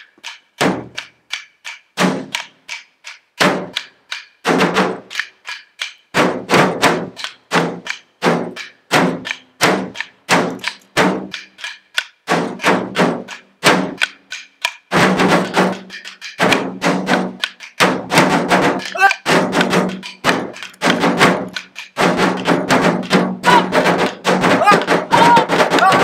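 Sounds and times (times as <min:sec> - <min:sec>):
sticks striking sheet metal: 0:15.3 - 0:26.0.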